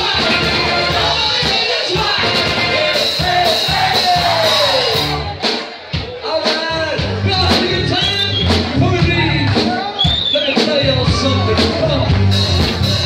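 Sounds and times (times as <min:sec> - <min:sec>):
person singing: 0:00.0 - 0:05.6
funk band with horns playing: 0:00.0 - 0:13.0.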